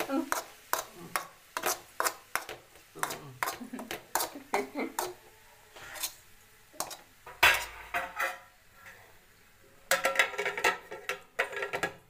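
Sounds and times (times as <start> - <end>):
spatula scraping metal pan: 0.0 - 9.2, 9.9 - 12.0
pan lid clattering: 7.3 - 8.5, 9.9 - 12.0.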